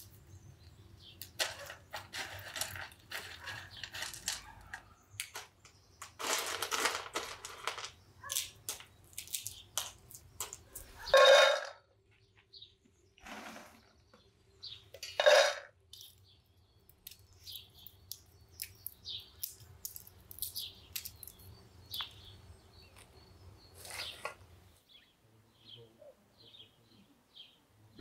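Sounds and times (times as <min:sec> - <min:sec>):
small birds chirping: 0:00.0 - 0:28.0
nuts rattling into a bowl: 0:01.2 - 0:11.7.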